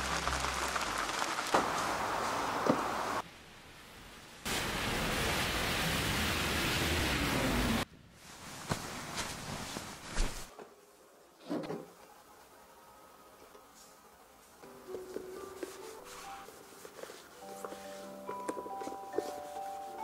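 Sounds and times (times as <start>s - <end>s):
tyres hissing on wet road: 0.0s - 3.3s, 4.4s - 7.9s
rain falling: 0.0s - 7.9s.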